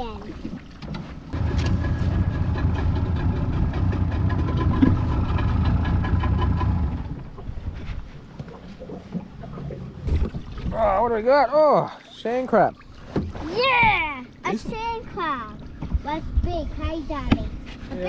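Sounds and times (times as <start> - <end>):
outboard motor idling: 1.3 - 7.8.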